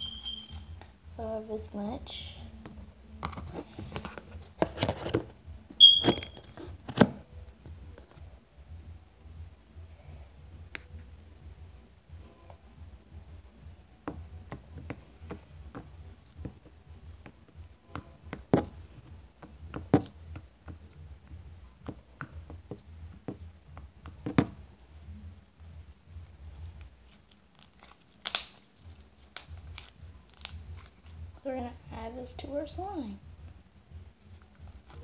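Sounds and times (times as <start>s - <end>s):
slime squelching and popping: 27.5s - 28.7s.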